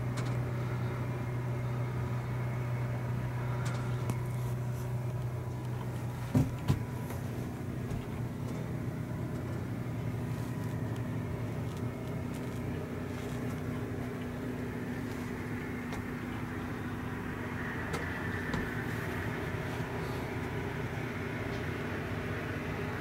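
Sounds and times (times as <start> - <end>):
low mechanical hum: 0.0 - 23.0.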